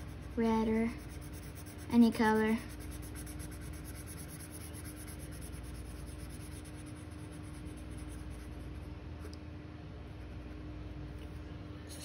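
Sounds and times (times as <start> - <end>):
marker scribbling on paper: 0.0 - 8.7.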